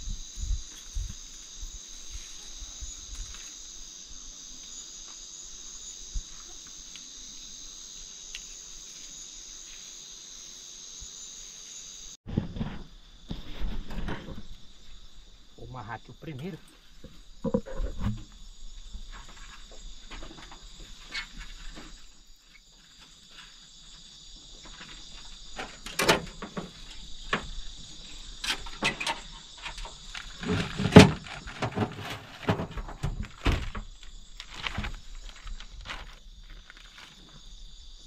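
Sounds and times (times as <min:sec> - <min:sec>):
night insects chorus: 0:00.0 - 0:38.0.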